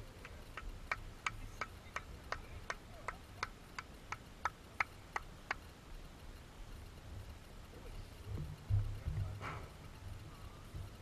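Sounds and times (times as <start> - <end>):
hand clapping: 0.2 - 5.6.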